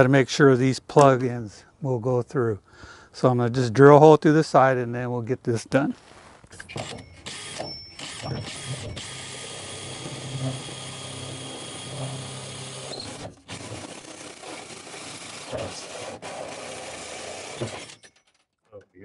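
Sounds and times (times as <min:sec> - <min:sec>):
drill hole saw cutting metal: 0:06.6 - 0:18.2.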